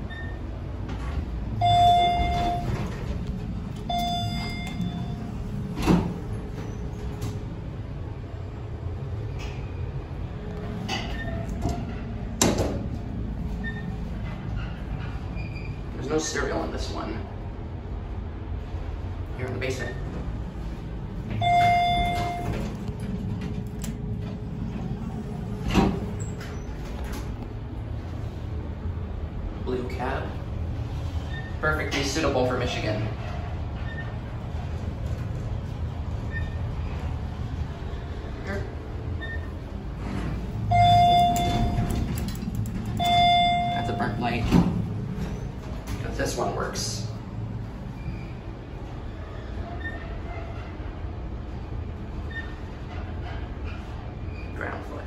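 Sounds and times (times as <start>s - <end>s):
elevator cab hum: 0.0s - 55.0s
elevator chime: 1.5s - 5.5s, 21.3s - 22.8s, 40.6s - 44.5s.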